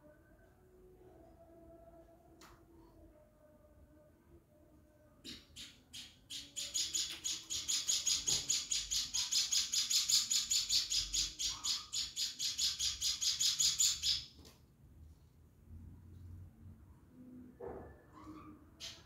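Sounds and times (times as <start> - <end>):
bird chick chirping: 5.3 - 14.3.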